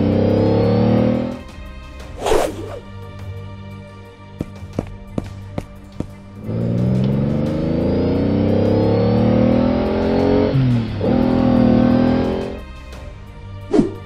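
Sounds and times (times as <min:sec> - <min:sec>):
car engine accelerating: 0:00.0 - 0:01.6, 0:06.2 - 0:12.9.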